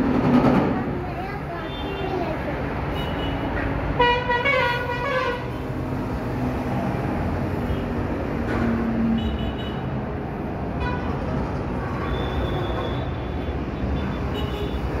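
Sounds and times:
road traffic noise: 0.0 - 15.0
vehicle horns: 2.9 - 5.6, 9.1 - 9.9, 10.8 - 11.2, 11.8 - 15.0.

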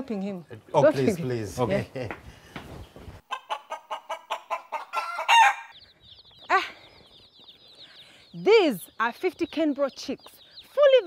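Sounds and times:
chickens clucking: 0.6 - 11.0
chicks peeping: 2.3 - 11.0.

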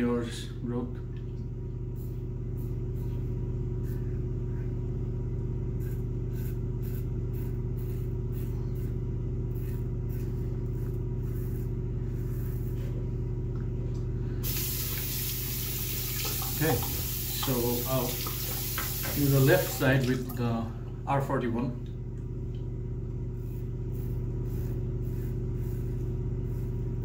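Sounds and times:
low hum: 0.4 - 18.4, 19.6 - 27.0.

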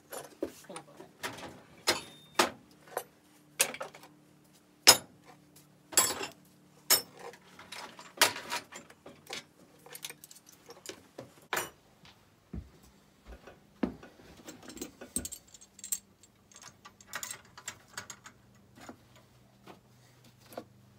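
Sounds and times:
metal tools clanking on wood: 1.2 - 4.1, 5.9 - 11.8, 13.4 - 19.3.

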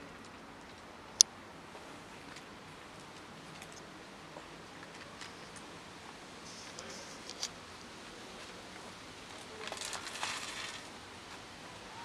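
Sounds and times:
kibble rattling onto concrete: 9.6 - 10.9.

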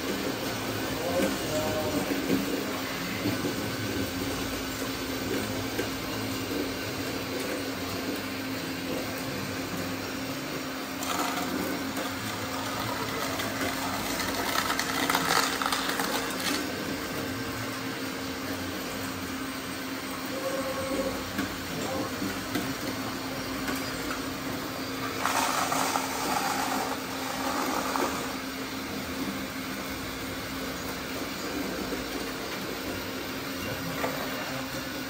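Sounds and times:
small electric motors whirring: 25.0 - 28.4.

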